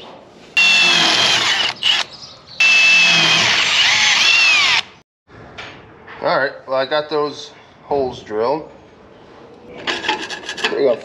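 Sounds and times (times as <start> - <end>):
power drill boring through steel: 0.6 - 5.0.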